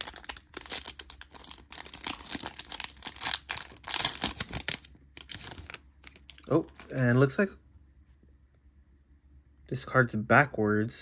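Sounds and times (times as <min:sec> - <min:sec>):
foil wrapper crinkling: 0:00.0 - 0:07.0.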